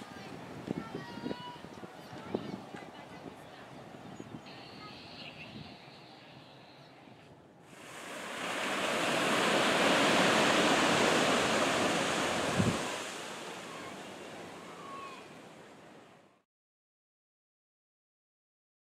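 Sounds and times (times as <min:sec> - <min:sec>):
small waves breaking on sand: 0:07.7 - 0:16.3.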